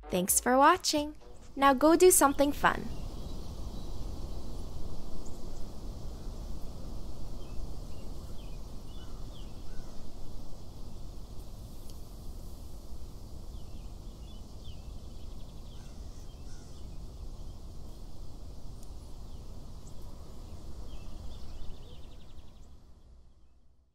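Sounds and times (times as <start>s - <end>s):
low rumble: 0.0s - 3.4s
small birds chirping: 2.1s - 6.4s.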